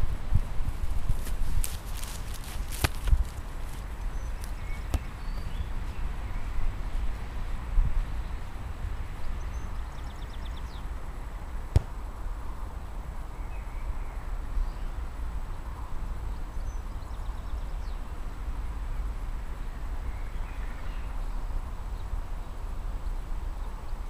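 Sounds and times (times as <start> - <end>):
wind rumbling on microphone: 0.0 - 24.0.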